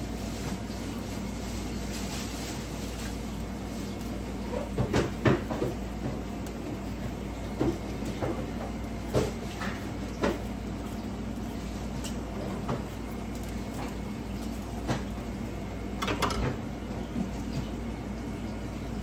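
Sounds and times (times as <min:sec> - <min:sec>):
steady low hum: 0:00.0 - 0:19.0
kitchen utensils knocking and clinking: 0:16.0 - 0:16.6.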